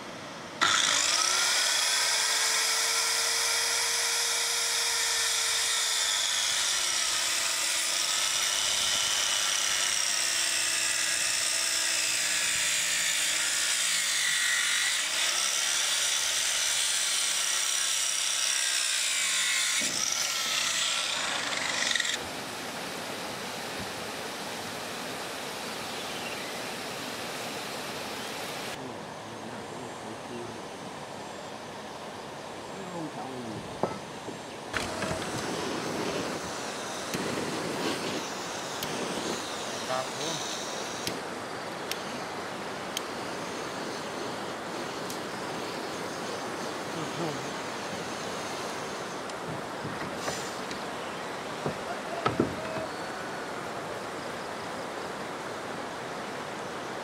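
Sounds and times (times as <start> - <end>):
power tool running: 0.6 - 22.2, 34.7 - 41.2.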